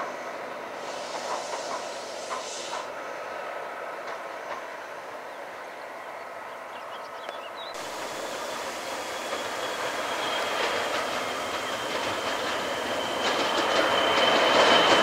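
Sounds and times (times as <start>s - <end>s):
diesel locomotive approaching: 0.0s - 15.0s
distant diesel train rumble: 0.0s - 15.0s
high engine whine: 7.8s - 15.0s.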